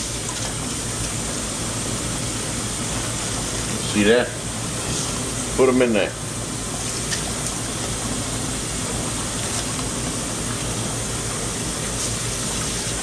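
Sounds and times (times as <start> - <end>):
tap water running into a pot: 6.5 - 13.0.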